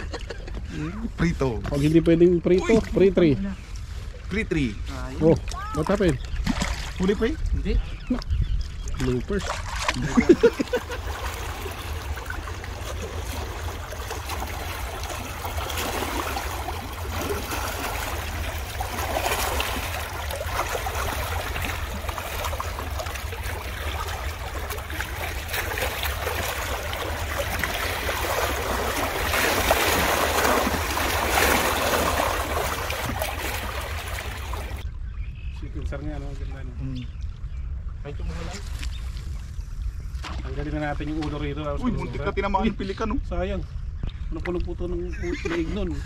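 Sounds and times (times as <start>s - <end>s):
flowing river water: 8.8s - 34.9s.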